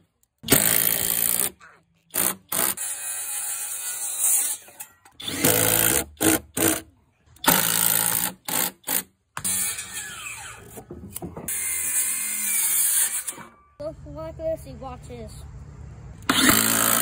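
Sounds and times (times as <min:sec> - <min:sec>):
impact driver running: 0:16.3 - 0:17.0.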